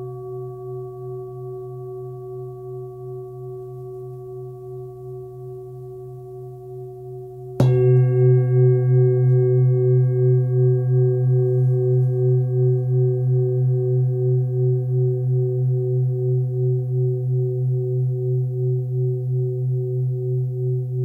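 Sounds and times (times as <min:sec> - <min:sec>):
singing bowl ringing: 0:00.0 - 0:21.0
singing bowl struck: 0:00.0 - 0:21.0.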